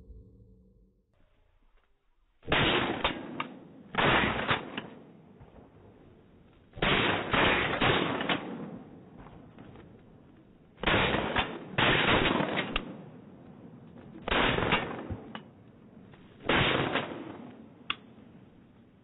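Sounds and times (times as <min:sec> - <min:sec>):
shotgun shots echoing: 0:02.4 - 0:05.9, 0:06.8 - 0:09.6, 0:10.8 - 0:13.2, 0:14.3 - 0:15.6, 0:16.4 - 0:18.2
faint sharp cracks: 0:02.5 - 0:18.6.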